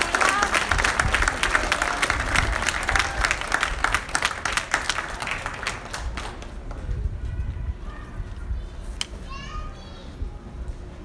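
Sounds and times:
crowd applauding: 0:00.0 - 0:06.8.

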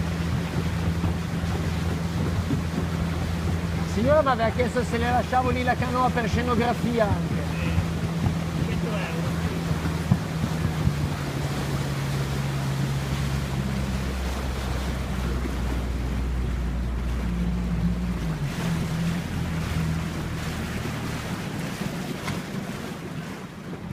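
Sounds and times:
outboard motor humming: 0:00.0 - 0:23.9
water noise: 0:00.0 - 0:23.9
wind noise: 0:05.5 - 0:14.4.

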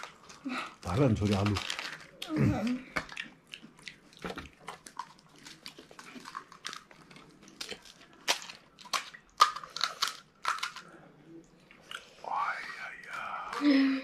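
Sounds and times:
crunching fried snack: 0:00.0 - 0:02.4, 0:03.0 - 0:11.0.

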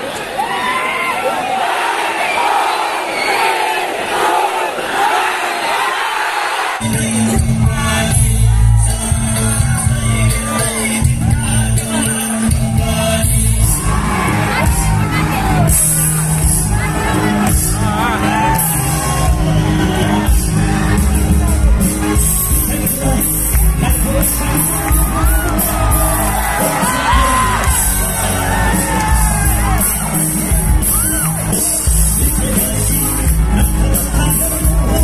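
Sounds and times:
crowd shouting and whooping: 0:00.0 - 0:35.0
bass guitar: 0:06.8 - 0:35.0
person singing: 0:06.8 - 0:35.0
drums with cymbals: 0:14.6 - 0:35.0.

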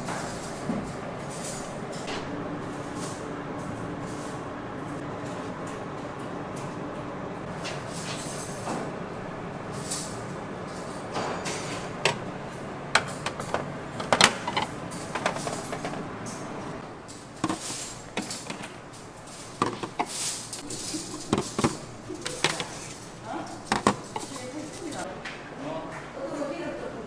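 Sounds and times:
steady background hum: 0:00.0 - 0:27.0
dishes and utensils clinking: 0:09.7 - 0:16.5, 0:17.1 - 0:25.1.

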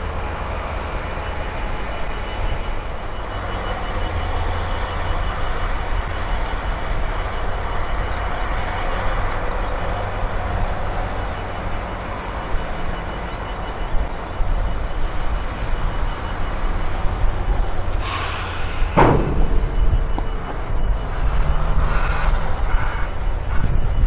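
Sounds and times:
diesel engine rumbling: 0:00.0 - 0:24.0
sharp knock: 0:19.0 - 0:20.5.

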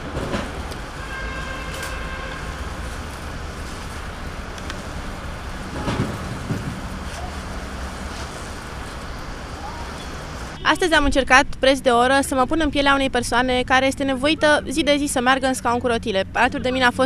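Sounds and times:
city traffic: 0:00.0 - 0:17.0
low knocks and rumbles: 0:05.4 - 0:07.1.

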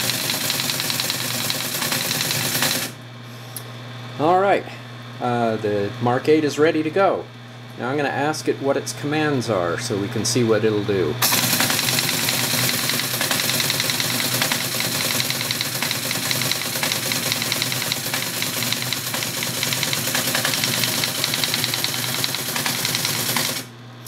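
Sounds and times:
teletype clattering: 0:00.0 - 0:03.0, 0:11.2 - 0:23.7.

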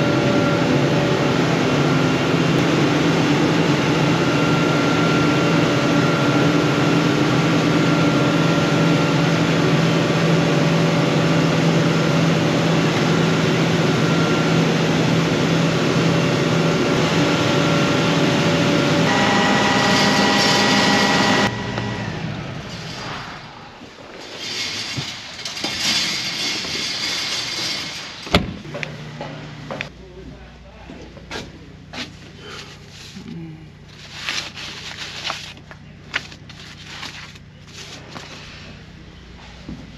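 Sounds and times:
heavy vehicle engine running: 0:00.0 - 0:24.1.

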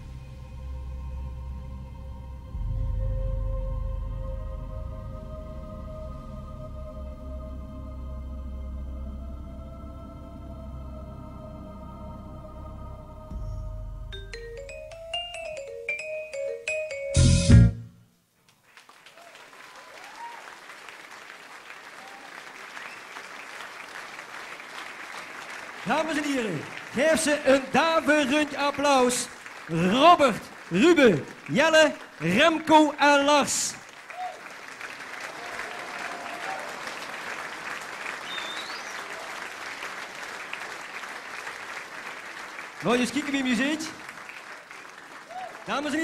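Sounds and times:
music: 0:00.0 - 0:18.1
audience applauding: 0:18.5 - 0:46.0.

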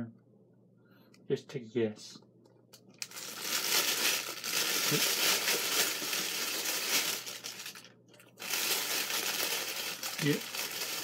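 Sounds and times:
paper bag rustling and crinkling: 0:03.0 - 0:11.0.

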